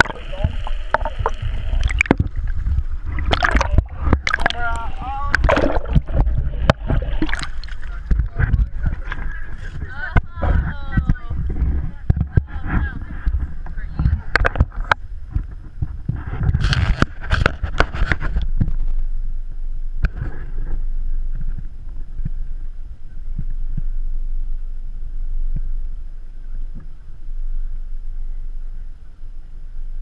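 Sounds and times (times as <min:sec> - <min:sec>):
muffled boat engine rumble: 0:00.0 - 0:30.0
gear rustling against camera: 0:01.3 - 0:19.0.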